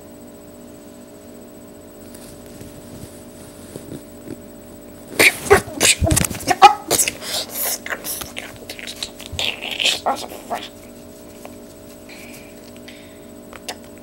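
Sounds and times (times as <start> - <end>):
scuffling and grunting: 2.2 - 12.7.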